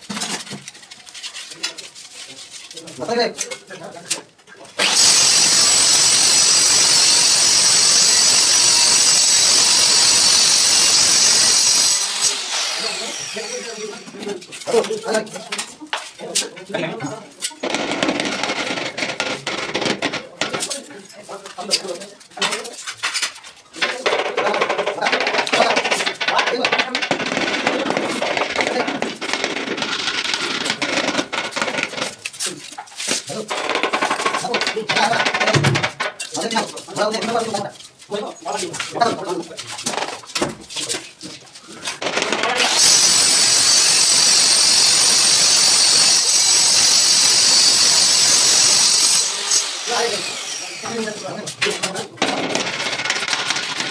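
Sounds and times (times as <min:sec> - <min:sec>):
sharp knocks on tile: 0:33.5 - 0:36.2.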